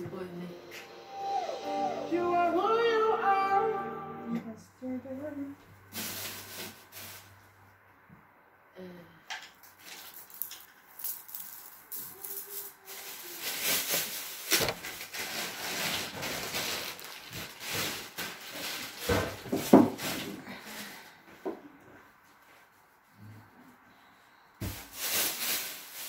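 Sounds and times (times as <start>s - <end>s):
rustling and handling noise: 5.8s - 7.8s, 9.6s - 23.9s, 24.6s - 26.0s.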